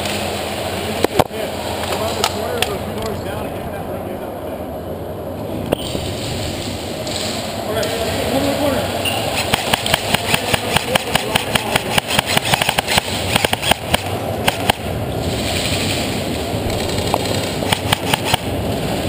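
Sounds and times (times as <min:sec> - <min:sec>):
airsoft rifle firing: 0:09.4 - 0:14.9, 0:17.0 - 0:18.5.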